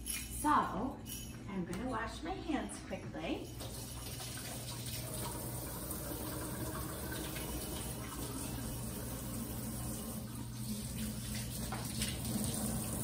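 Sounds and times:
faucet running into steel sink: 3.6 - 13.0
hands washing under water: 6.8 - 13.0.

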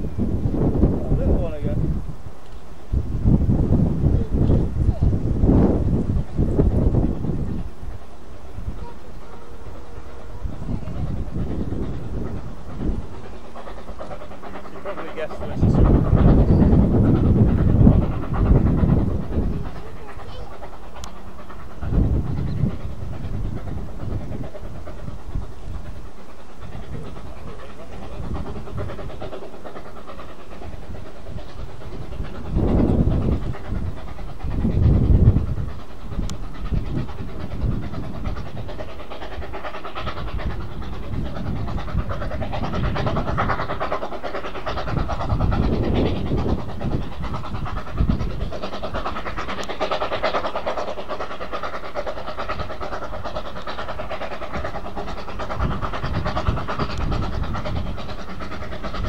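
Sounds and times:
carriages rolling along track: 0.0 - 59.0
steam locomotive exhaust beats: 0.0 - 59.0.

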